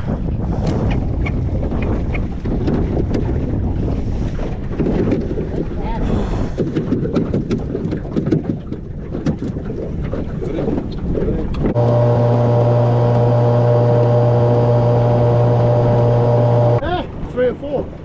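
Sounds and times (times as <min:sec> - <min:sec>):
wind on microphone: 0:00.0 - 0:17.3
outboard motor droning: 0:11.6 - 0:16.8.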